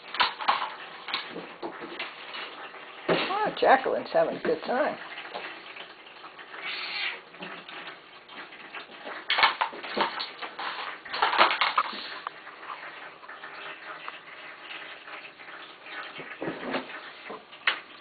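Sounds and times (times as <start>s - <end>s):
plastic box clattering: 9.3s - 12.0s.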